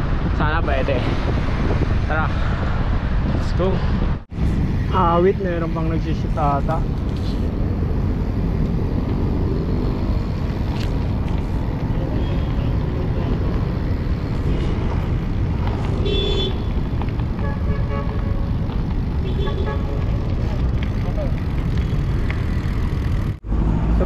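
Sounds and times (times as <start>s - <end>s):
wind buffeting microphone: 0.0s - 5.0s.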